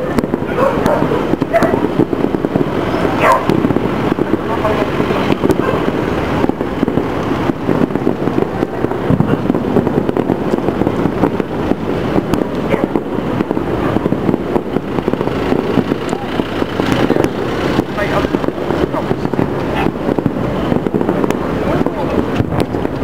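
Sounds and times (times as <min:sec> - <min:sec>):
distant fireworks rumble and crackle: 0:00.0 - 0:23.0.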